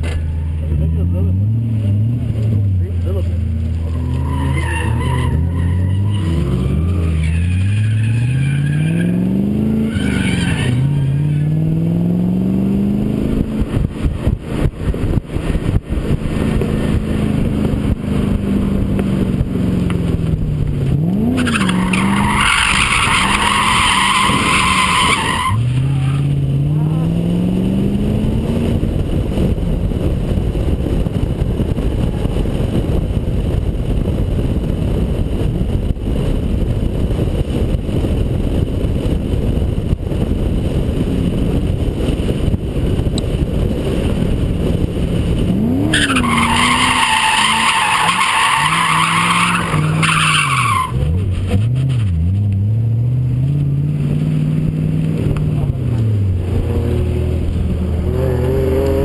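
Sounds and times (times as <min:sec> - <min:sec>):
car engine revving: 0:00.0 - 0:33.5, 0:40.2 - 0:59.0
road and wind noise: 0:00.0 - 0:59.0
tyres squealing: 0:03.8 - 0:09.1, 0:21.4 - 0:26.2, 0:45.9 - 0:51.0.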